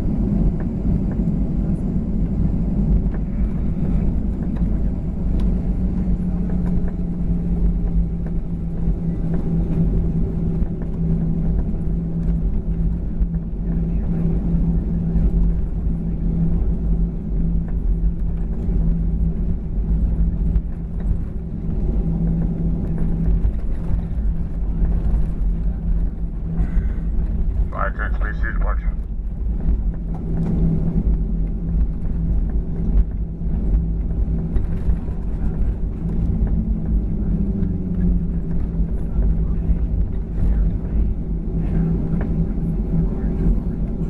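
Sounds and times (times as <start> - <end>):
jet engines humming in cabin: 0.0 - 44.0.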